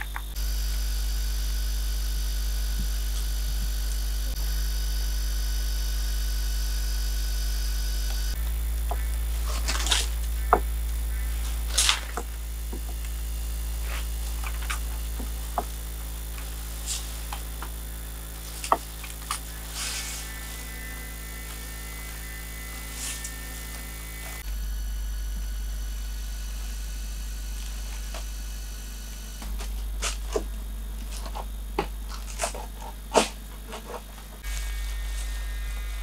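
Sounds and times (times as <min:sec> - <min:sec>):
low hum: 0:00.0 - 0:36.0
dry thatch rustling: 0:18.3 - 0:23.4.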